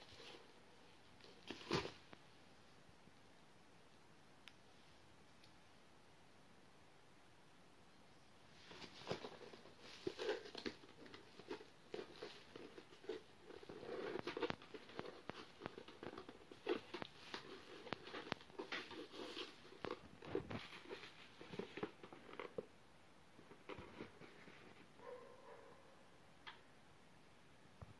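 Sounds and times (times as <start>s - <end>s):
rustling and crackling of packaging: 1.2s - 2.2s, 8.5s - 22.8s, 23.4s - 25.3s.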